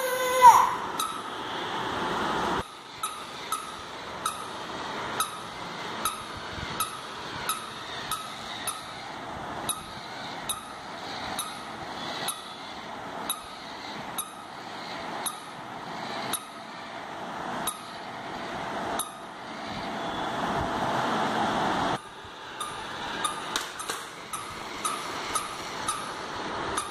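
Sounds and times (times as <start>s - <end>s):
toy motor whirring: 0.0s - 1.2s, 2.6s - 4.6s, 5.2s - 16.6s, 22.6s - 26.9s
sharp click of toy jumping: 22.6s - 26.0s.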